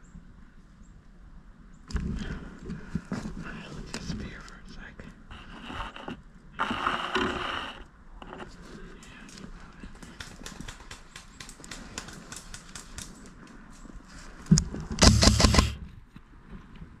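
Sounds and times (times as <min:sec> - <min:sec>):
rustling burst: 0:14.9 - 0:15.8.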